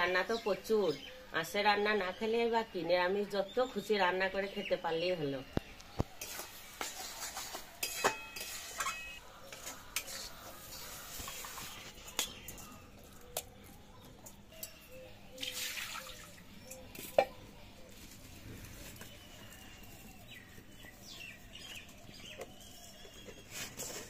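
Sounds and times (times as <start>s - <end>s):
metal spatula scraping wok: 6.2s - 12.8s.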